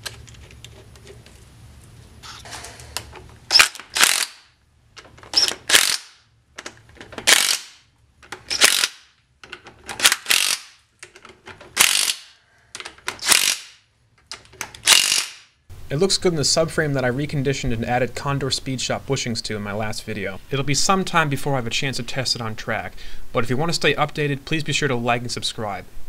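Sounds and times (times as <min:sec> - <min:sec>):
impact driver rattling bursts: 0:03.5 - 0:04.5, 0:05.2 - 0:06.2, 0:07.1 - 0:07.8, 0:08.4 - 0:09.1, 0:09.8 - 0:10.9, 0:11.7 - 0:12.3, 0:13.1 - 0:13.7, 0:14.8 - 0:15.4.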